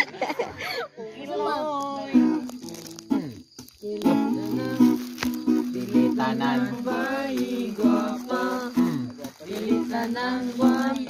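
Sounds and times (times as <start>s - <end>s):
strummed acoustic string instrument: 2.0s - 10.0s
people singing along: 3.8s - 11.0s.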